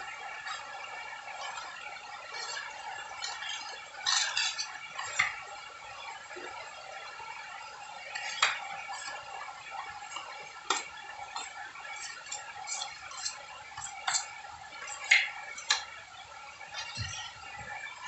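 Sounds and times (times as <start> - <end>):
steady background hum: 0.0 - 18.0
putty knife scraping and clinking: 10.7 - 14.3.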